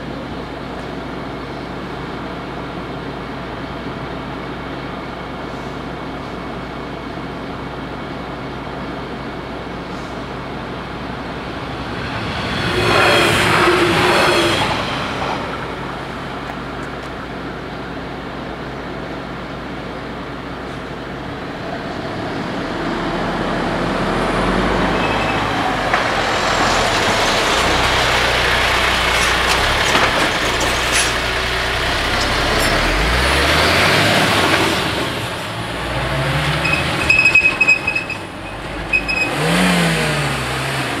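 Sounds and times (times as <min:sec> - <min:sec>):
diesel lorry driving past: 0:09.1 - 0:17.8, 0:20.5 - 0:41.0
car passing: 0:09.8 - 0:17.3, 0:21.4 - 0:29.8.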